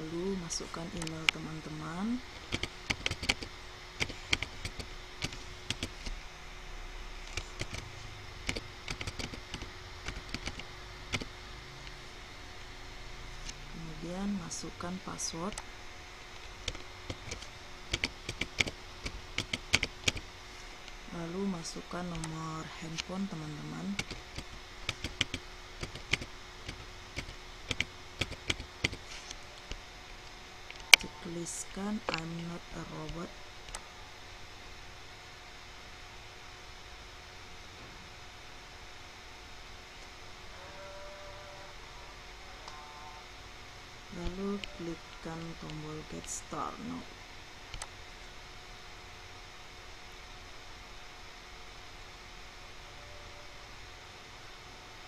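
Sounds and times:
typing on computer keyboard: 2.5 - 6.1, 7.3 - 11.4, 16.6 - 20.2, 23.9 - 29.1.

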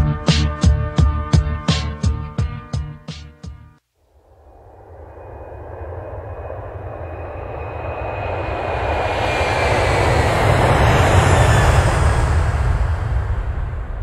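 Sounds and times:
airplane engine roar: 4.2 - 14.0.

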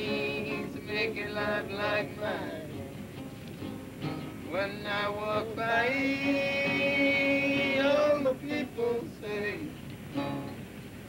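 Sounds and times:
man singing without words: 0.0 - 2.8, 4.4 - 9.9.

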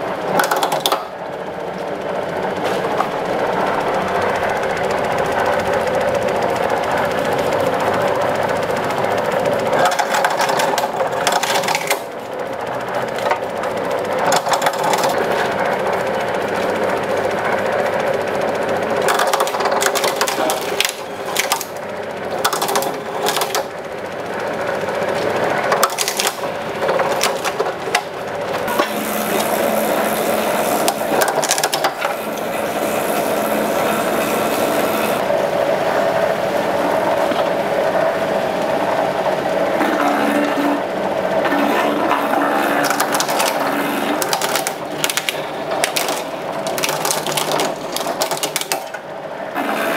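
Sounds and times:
small machine motor running: 0.0 - 49.9
sharp knocks and clicks: 0.3 - 1.1, 22.4 - 23.7.

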